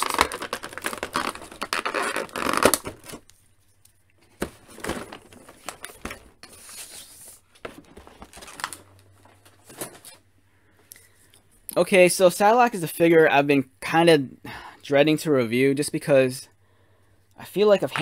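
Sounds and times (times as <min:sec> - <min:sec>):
plastic blister tray crinkling: 0:00.0 - 0:03.4, 0:07.6 - 0:10.2.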